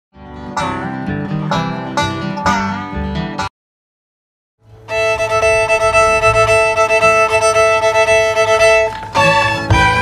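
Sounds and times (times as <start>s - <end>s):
bluegrass string band music: 0.2s - 3.5s, 4.7s - 10.0s
fiddle holding long note: 4.7s - 10.0s.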